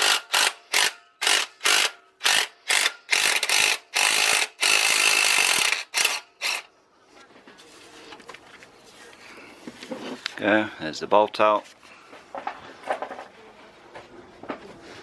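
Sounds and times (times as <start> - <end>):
cordless power tool bursts: 0.0 - 6.7.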